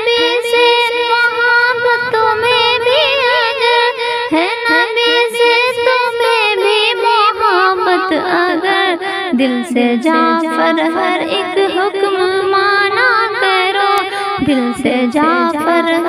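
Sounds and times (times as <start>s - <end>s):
held drone: 0.0s - 4.8s
woman singing wordless melody: 0.0s - 16.0s.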